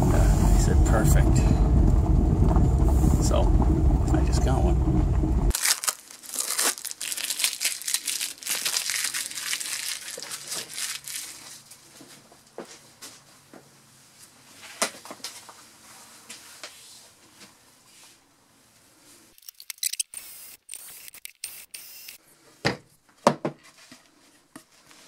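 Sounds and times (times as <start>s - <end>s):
crinkling rustling handling noise: 5.5s - 13.3s.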